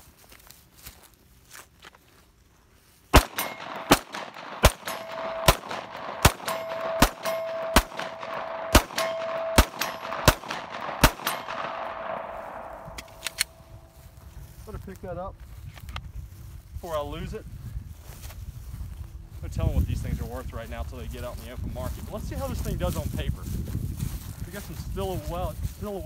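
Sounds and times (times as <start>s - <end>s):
pistol shots: 3.1s - 14.0s
steel target ringing: 3.2s - 13.9s.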